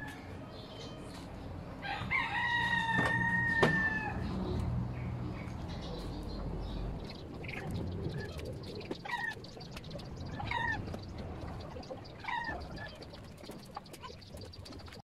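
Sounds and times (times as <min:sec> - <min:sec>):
low rumble: 0:03.3 - 0:13.1.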